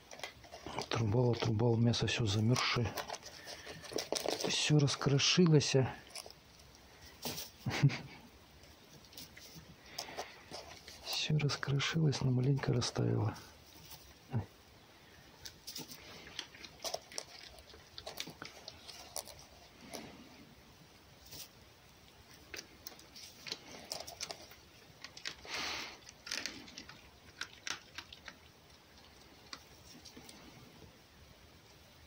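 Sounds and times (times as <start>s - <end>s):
fox nibbling and chewing: 0.0s - 31.0s
rustling: 0.0s - 32.0s.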